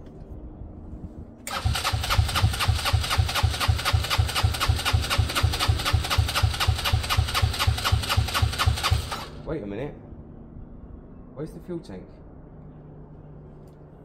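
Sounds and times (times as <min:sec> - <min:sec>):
scooter engine cranking: 0:01.5 - 0:09.4.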